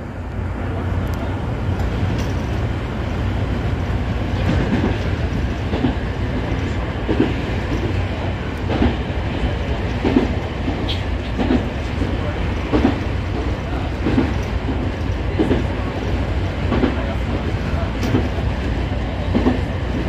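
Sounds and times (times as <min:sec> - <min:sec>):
electric train rumbling: 0:00.0 - 0:20.0
wheel clacks over rail joints: 0:01.1 - 0:03.2, 0:04.3 - 0:18.4.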